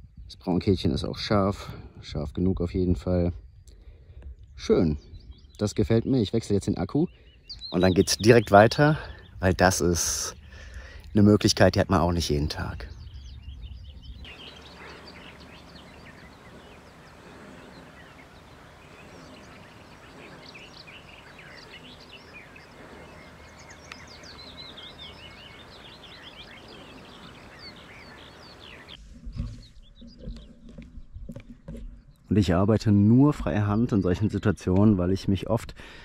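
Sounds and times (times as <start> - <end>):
small birds chirping: 2.1 - 36.0
low rumbles: 9.0 - 32.6
outdoor hiss: 14.2 - 29.0.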